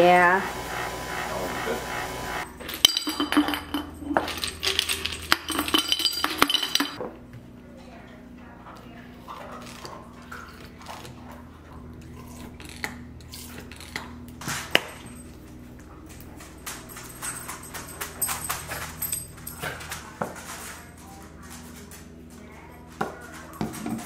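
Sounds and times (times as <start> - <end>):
kitchen things clinking and knocking: 2.5 - 7.0.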